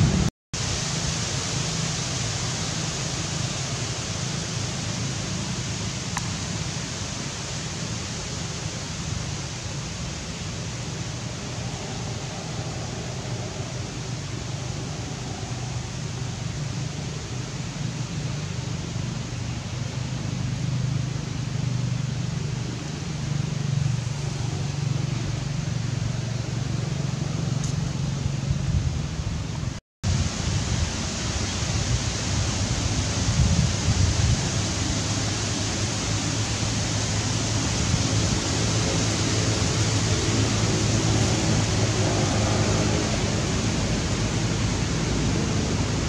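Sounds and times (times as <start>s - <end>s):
steady rushing noise: 0.0s - 46.0s
low hum: 9.8s - 29.8s.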